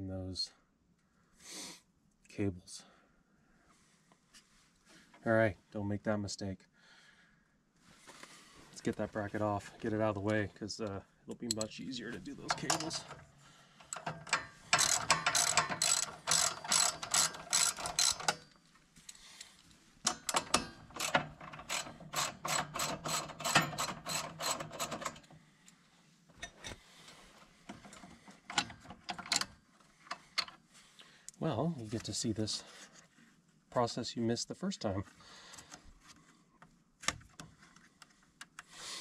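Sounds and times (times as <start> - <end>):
ratchet wrench clicking: 12.4 - 13.2, 13.8 - 18.5, 20.1 - 25.3.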